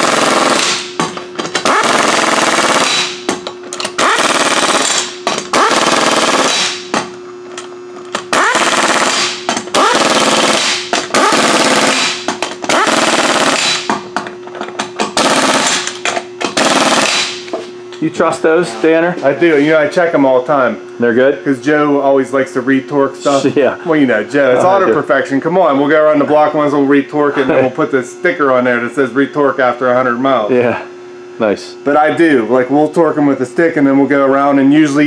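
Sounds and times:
pneumatic impact wrench hammering: 0.0 - 17.7.

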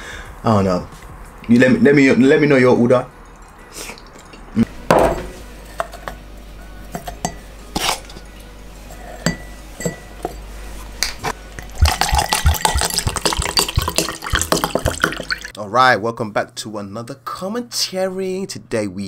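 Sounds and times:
drink pouring over ice: 11.6 - 15.5.

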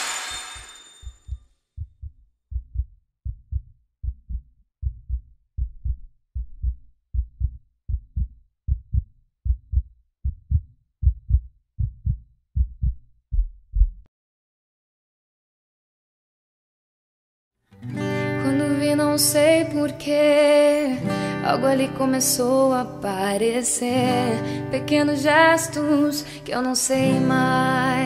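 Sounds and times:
heartbeat thumping: 1.0 - 14.1.

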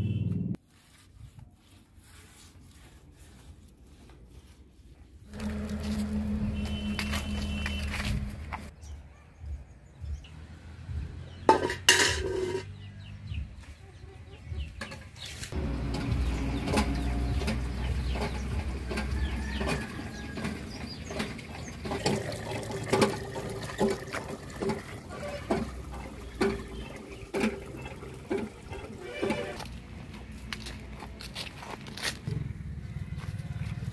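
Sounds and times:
metal pot knocking: 11.5 - 12.7
hens clucking: 15.7 - 29.7
water pouring into steel bucket: 20.3 - 29.6.

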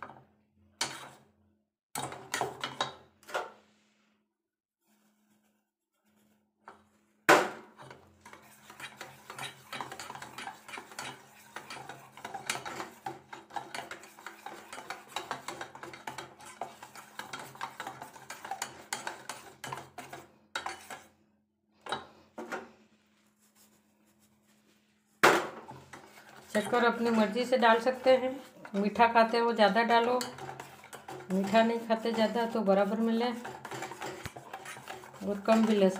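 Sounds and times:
wire whisk clattering in metal bowl: 8.2 - 21.0, 25.7 - 35.9.

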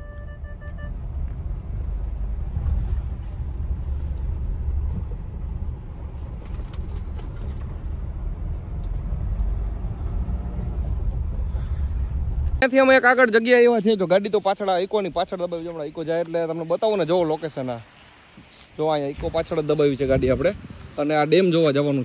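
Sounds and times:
car engine and tyres rumbling: 0.0 - 22.0.

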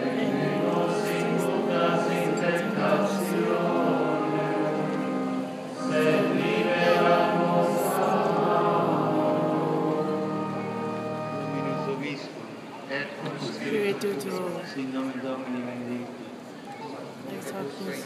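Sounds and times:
choir singing a chant: 0.0 - 12.0.

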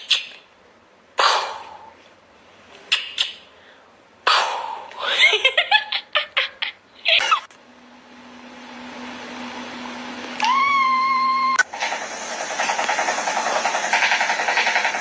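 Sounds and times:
sharp breathy outbursts: 1.2 - 2.0, 3.4 - 5.1
person laughing: 4.9 - 7.5.

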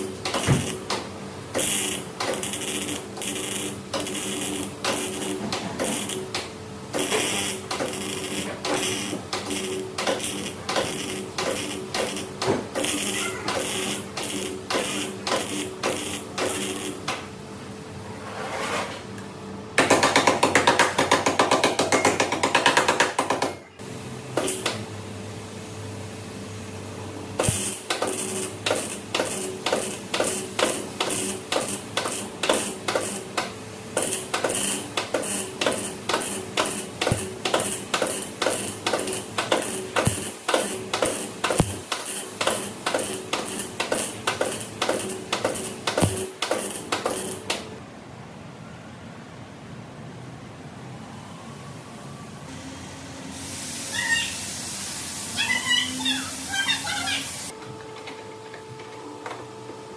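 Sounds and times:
welder crackling: 0.0 - 17.2, 27.4 - 47.6.

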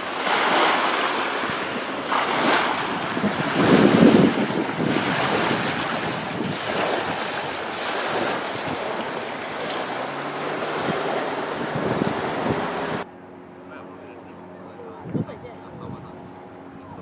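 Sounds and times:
small waves washing onto sand: 0.0 - 13.0
wind on microphone: 1.3 - 13.0.

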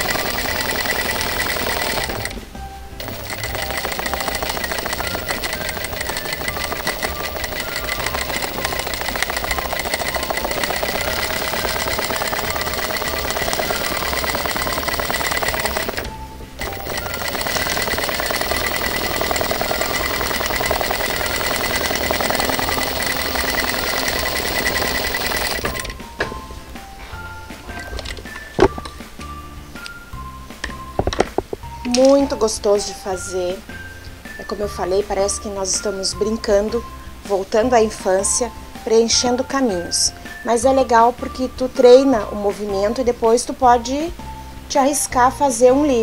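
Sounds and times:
sewing machine stitching: 0.0 - 2.4, 3.0 - 26.0.

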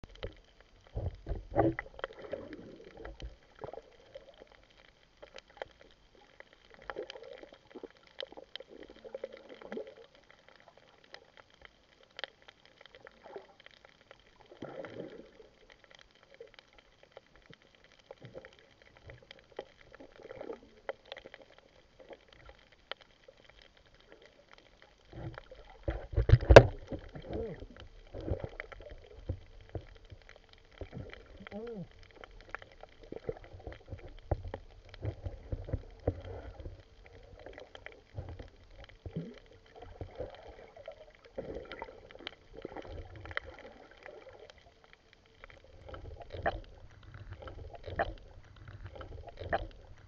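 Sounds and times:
underwater sloshing and bubbling: 0.0 - 50.0
small clicks: 15.6 - 50.0.

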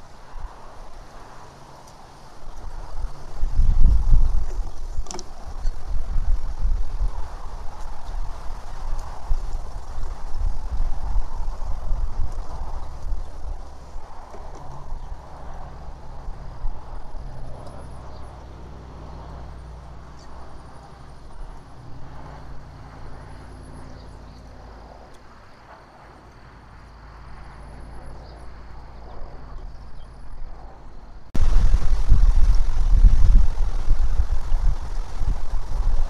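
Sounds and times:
songbird singing: 1.1 - 8.1, 12.4 - 25.6, 27.6 - 36.0
low rumble: 27.2 - 36.0.

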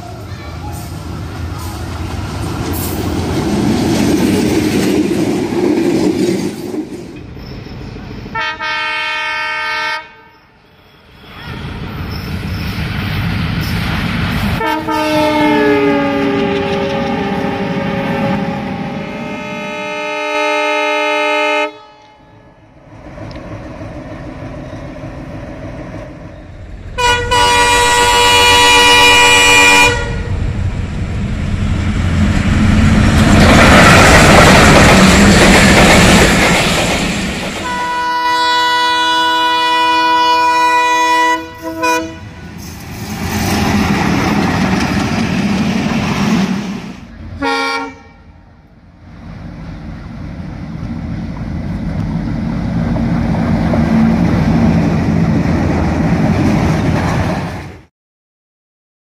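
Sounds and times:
train rumbling on rails: 0.0 - 57.9
locomotive horn blasts: 8.3 - 11.2, 14.6 - 22.6, 27.0 - 30.4, 37.6 - 42.6, 47.4 - 48.3.

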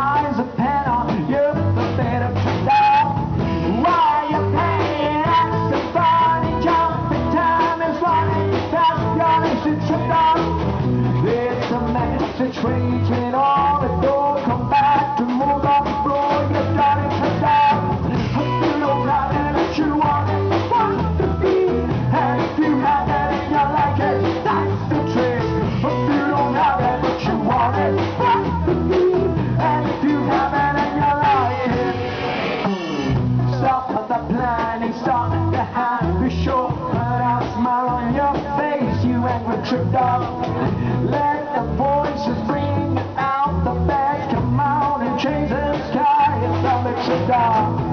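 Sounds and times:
acoustic guitar: 0.0 - 47.9
person singing: 0.0 - 47.9
steady percussion beat: 1.5 - 38.7.

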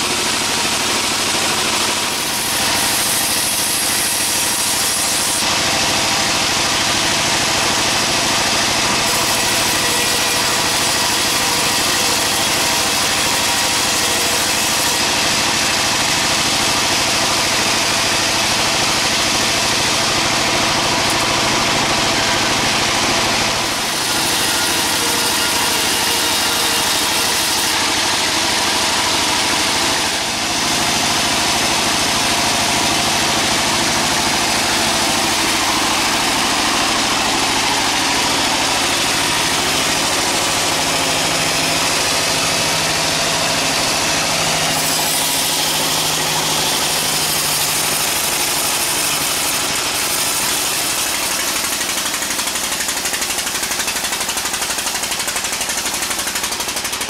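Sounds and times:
sawmill machinery running: 0.0 - 57.0.

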